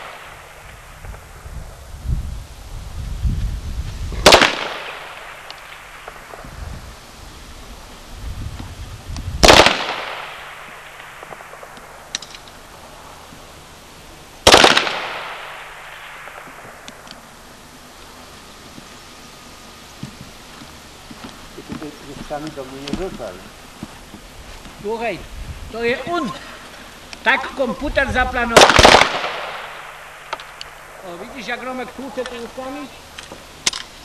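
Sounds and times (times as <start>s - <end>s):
rifle shots echoing: 0.0s - 1.2s, 4.2s - 6.5s, 9.4s - 12.8s, 14.4s - 17.0s, 28.5s - 31.6s.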